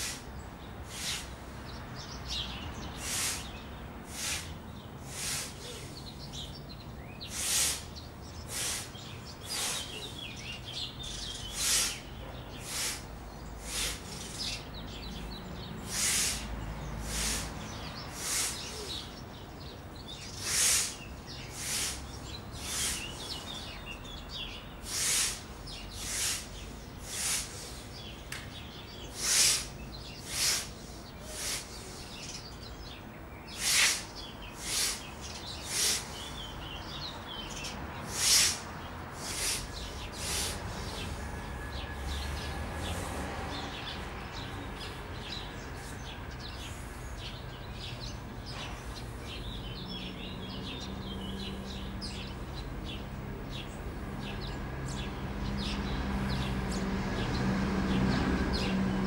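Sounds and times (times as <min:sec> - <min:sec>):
sharp hissing breaths: 0:00.0 - 0:01.6, 0:02.3 - 0:06.0, 0:07.2 - 0:19.1, 0:20.2 - 0:28.2, 0:29.0 - 0:41.2, 0:42.8 - 0:52.0.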